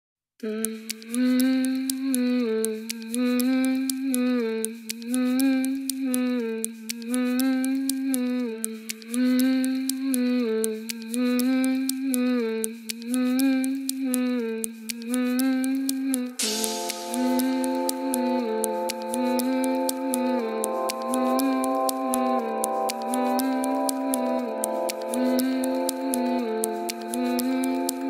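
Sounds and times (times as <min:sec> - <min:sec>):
ticking beat: 0:00.6 - 0:28.0
low sustained melody: 0:16.4 - 0:28.0.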